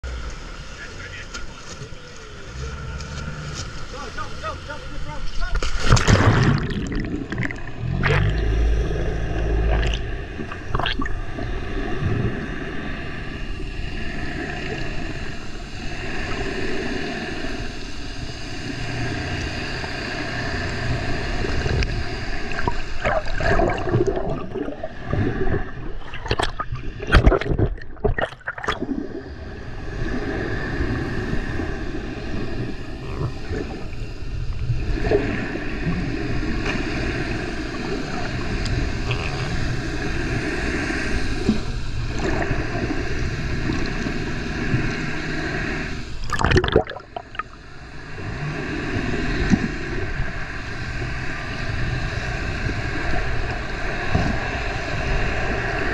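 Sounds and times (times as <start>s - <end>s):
faint steady hum: 0.0s - 55.9s
underwater churning and bubbling: 0.0s - 55.9s
sharp knocks and splashes: 5.6s - 8.3s.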